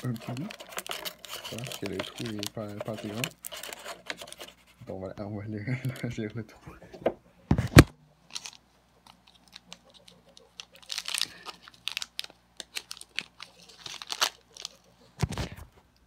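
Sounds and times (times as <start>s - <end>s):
plastic sachet crinkling and tearing: 0.0s - 4.5s, 8.3s - 15.5s.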